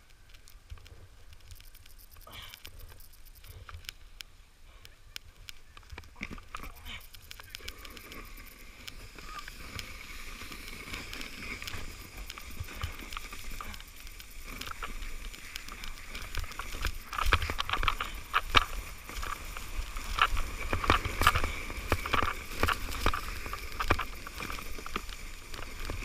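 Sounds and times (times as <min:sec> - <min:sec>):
sled scraping over snow: 0:05.9 - 0:26.0
sled knocking and thumping: 0:07.7 - 0:26.0.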